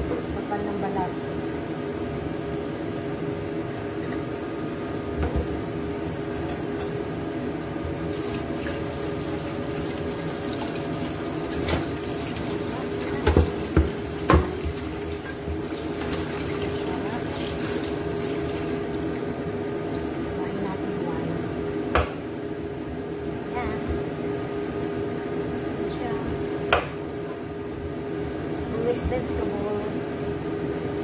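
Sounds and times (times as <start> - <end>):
steady hum: 0.0 - 31.0
tap water running into sink: 8.1 - 19.3.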